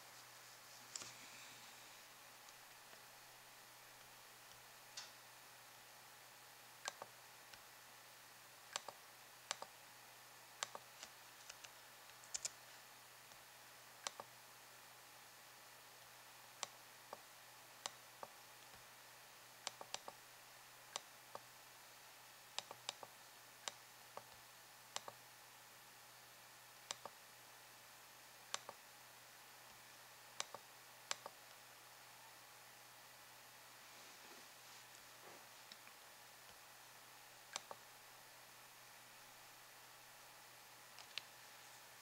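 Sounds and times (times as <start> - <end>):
faint steady hiss: 0.0 - 42.0
computer mouse button clicks: 37.5 - 37.8.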